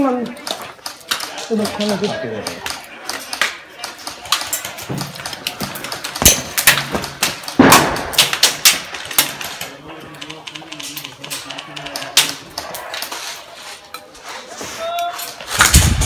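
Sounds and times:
airsoft guns firing: 0:00.4 - 0:09.6.

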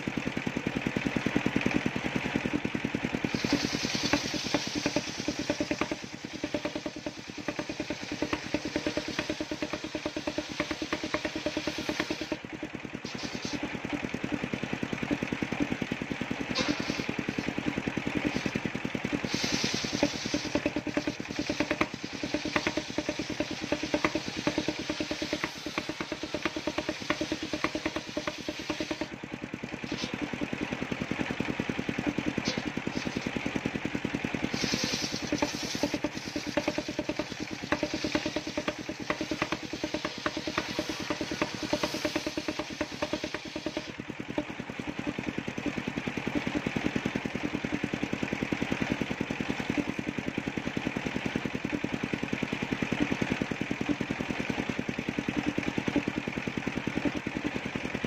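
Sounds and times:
sawmill engine running: 0:00.0 - 0:58.0
saw blade cutting log: 0:03.2 - 0:29.2, 0:29.8 - 0:33.7, 0:34.4 - 0:45.2.

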